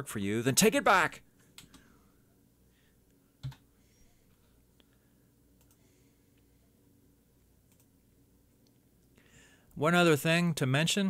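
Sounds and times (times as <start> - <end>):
computer keyboard clicks: 5.6 - 5.8, 7.7 - 7.9.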